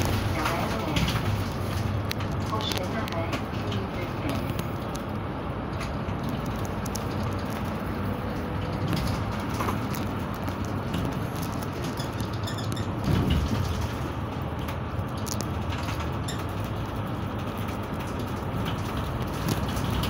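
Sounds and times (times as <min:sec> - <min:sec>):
bus engine and road noise: 0:00.0 - 0:20.0.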